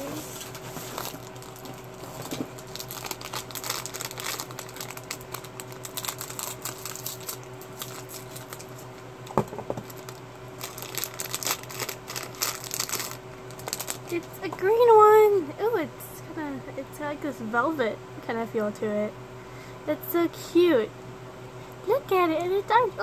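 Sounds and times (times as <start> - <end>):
foil wrapper crinkling: 0.4 - 14.3.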